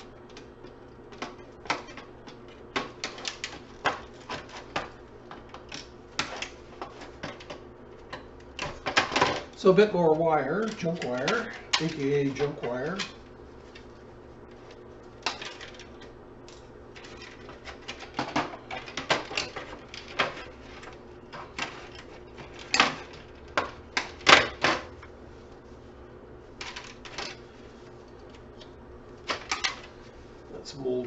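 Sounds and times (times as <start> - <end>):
clicks and clacks of parts: 10.5 - 13.2.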